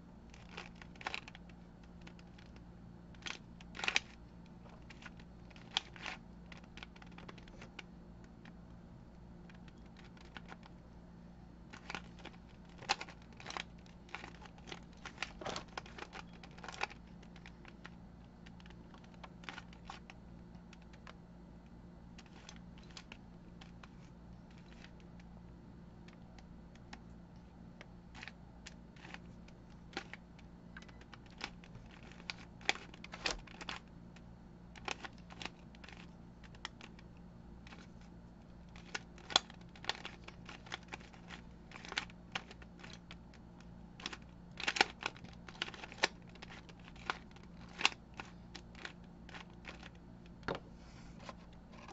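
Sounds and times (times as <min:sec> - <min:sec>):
faint steady hum: 0:00.0 - 0:51.9
plastic puzzle cube clicking: 0:00.3 - 0:04.2, 0:04.8 - 0:08.4, 0:11.7 - 0:21.2, 0:22.2 - 0:25.1, 0:28.1 - 0:33.9, 0:38.6 - 0:43.4, 0:44.0 - 0:50.4.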